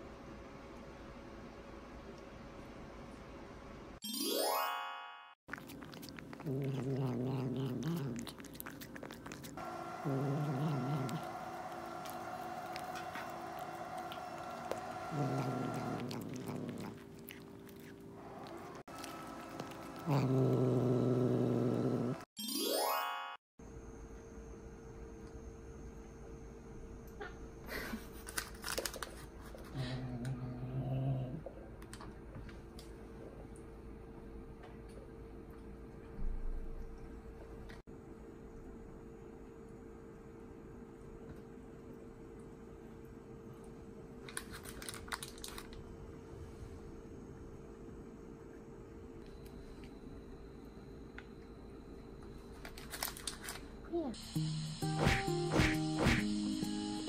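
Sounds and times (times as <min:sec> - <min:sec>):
faint eating clicks: 0:05.5 - 0:21.0
cat growling: 0:05.5 - 0:22.3, 0:29.8 - 0:31.6.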